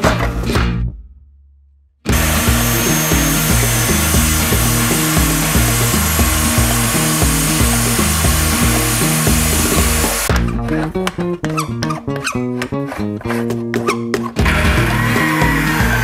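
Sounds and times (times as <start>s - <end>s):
background music with bass line: 0.0s - 1.0s, 2.1s - 16.0s
mitre saw cutting metal: 2.1s - 10.3s, 14.5s - 16.0s.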